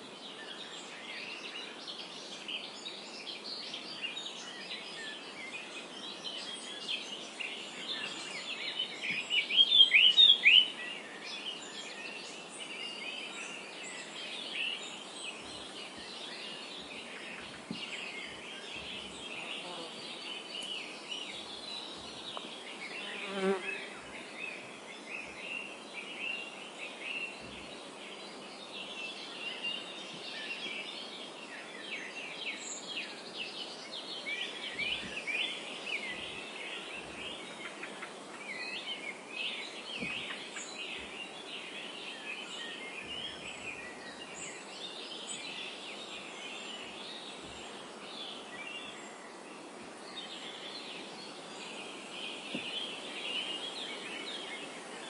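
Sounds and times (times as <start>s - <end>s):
wind through tall grass: 0.0s - 55.0s
insect buzz: 6.9s - 31.2s.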